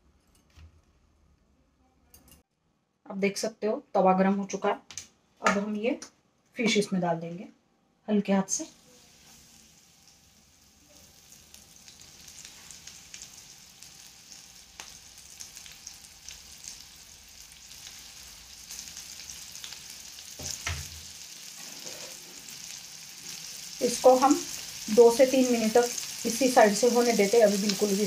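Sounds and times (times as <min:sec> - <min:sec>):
fish sizzling in hot oil: 0:08.7 - 0:28.0.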